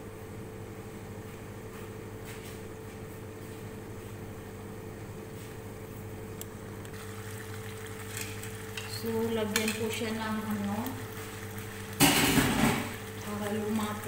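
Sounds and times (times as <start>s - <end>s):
motor humming: 6.4s - 14.0s.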